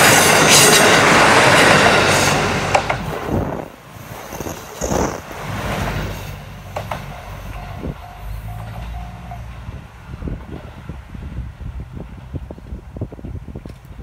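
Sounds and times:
wheel and rail noise: 0.0 - 14.0
short beeps: 7.9 - 9.5.

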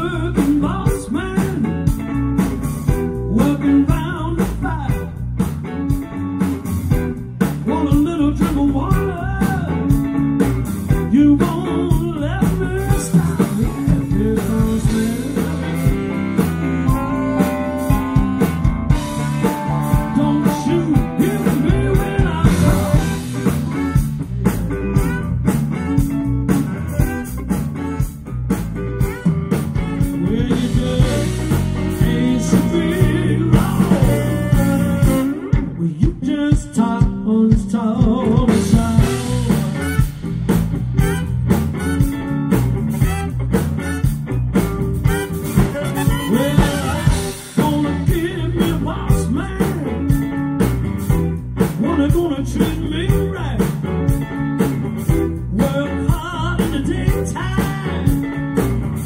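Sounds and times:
organ: 0.0 - 35.7
bass guitar: 0.0 - 59.0
drum kit: 0.0 - 59.0
electric guitar: 0.0 - 59.0.

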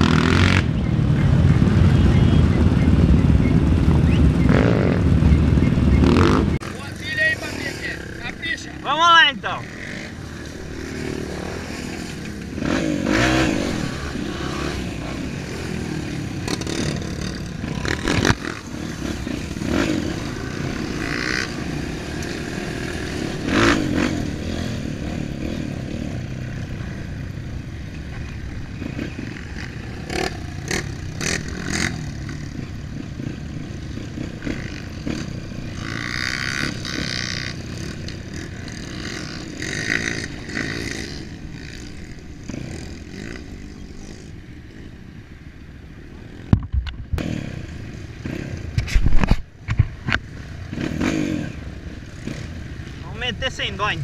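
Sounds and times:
off-road motorcycle engine: 0.0 - 54.0.

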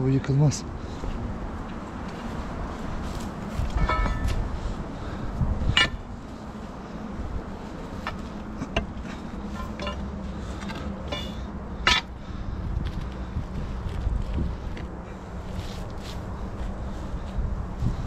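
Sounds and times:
low wind rumble on microphone: 0.0 - 18.0
pry bar clinking against rock: 11.0 - 12.1.

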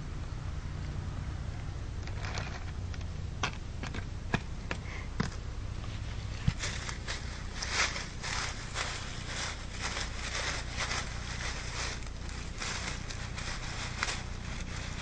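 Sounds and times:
low steady hum: 0.0 - 15.0
dry leaves rustling and crackling: 5.8 - 15.0.

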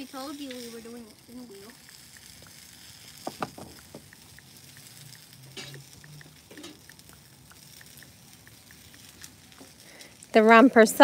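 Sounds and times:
faint soft ticks: 1.7 - 10.2.

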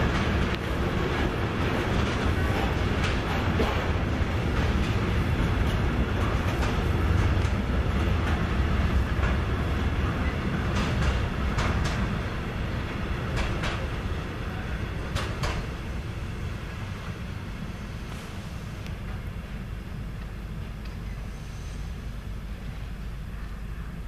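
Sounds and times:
train wheel clicks: 0.0 - 14.0, 15.0 - 15.9, 20.1 - 21.2, 22.5 - 23.7
freight train rumbling past: 0.0 - 24.0.

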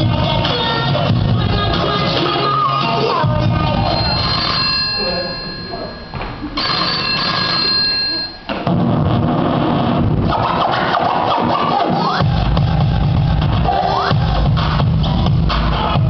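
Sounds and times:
loud dance music: 0.0 - 4.6, 8.7 - 16.0
telephone ringing: 3.7 - 8.7.

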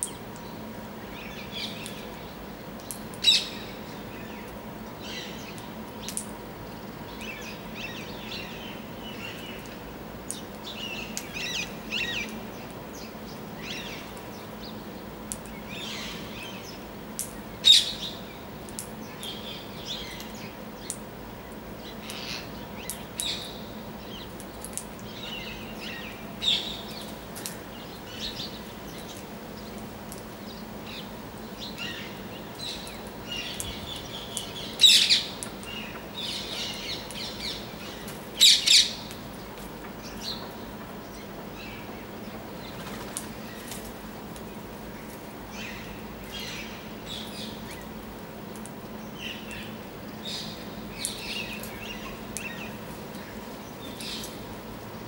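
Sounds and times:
loud sharp parakeet calls: 31.8 - 35.3.

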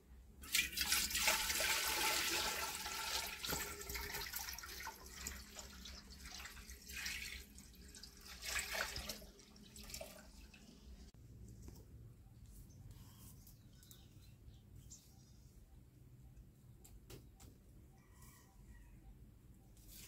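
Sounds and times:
water pouring and splashing: 0.4 - 11.1.

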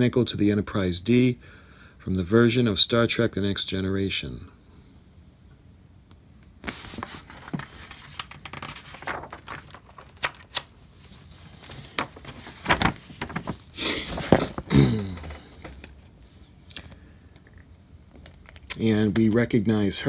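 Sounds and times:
magazine pages rustling: 6.6 - 16.1.

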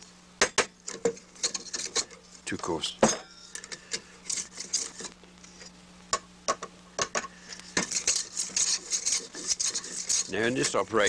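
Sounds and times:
hand plane scraping strokes: 7.9 - 10.4.

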